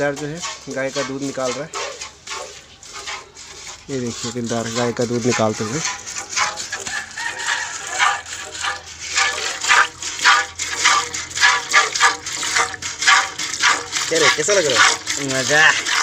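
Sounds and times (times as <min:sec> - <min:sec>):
milk squirting: 0:00.0 - 0:16.0.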